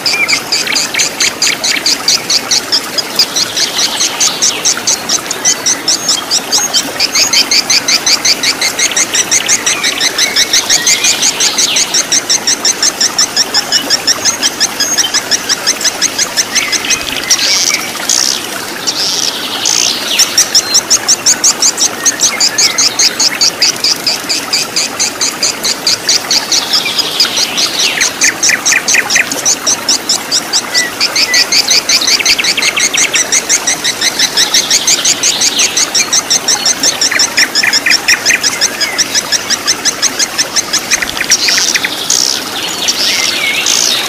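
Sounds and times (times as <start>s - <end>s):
birds trilling and chirping: 0.0s - 44.0s
stream running over rocks: 0.0s - 44.0s.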